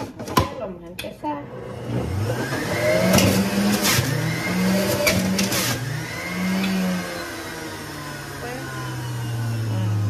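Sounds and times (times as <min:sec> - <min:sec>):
juicer motor humming: 0:01.4 - 0:10.0.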